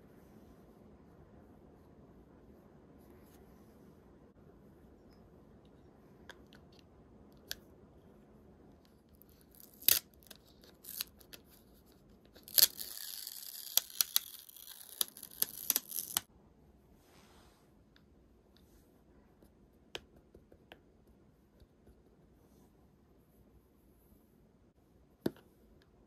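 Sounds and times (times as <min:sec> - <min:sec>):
plastic film peeling and crackling: 0:09.3 - 0:11.4, 0:12.4 - 0:16.3.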